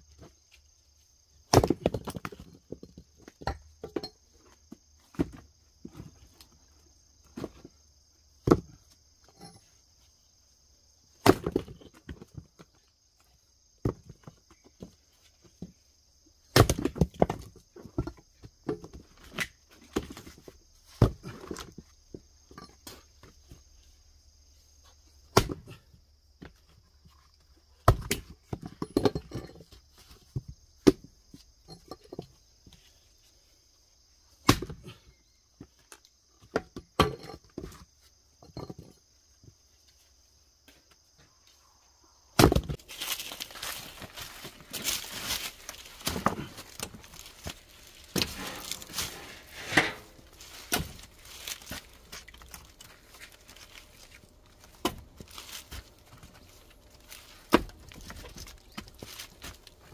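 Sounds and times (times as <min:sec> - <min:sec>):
firewood pieces knocking together: 0:01.5 - 0:04.2, 0:11.2 - 0:12.7, 0:16.5 - 0:21.9, 0:42.4 - 0:59.9.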